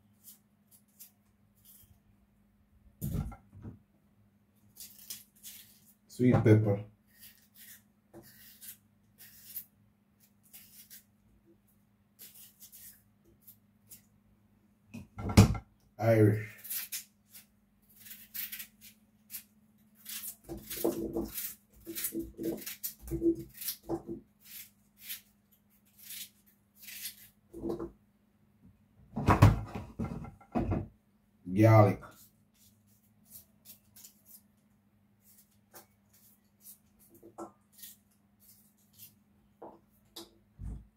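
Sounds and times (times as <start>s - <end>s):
knife slicing pepper: 7.1s - 11.1s, 12.2s - 14.0s, 16.5s - 27.7s, 35.2s - 39.2s.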